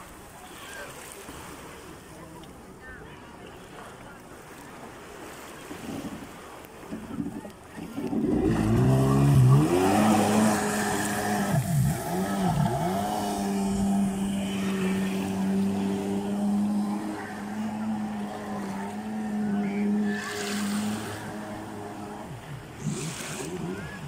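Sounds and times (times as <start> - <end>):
jet ski engine revving: 6.9 - 24.0.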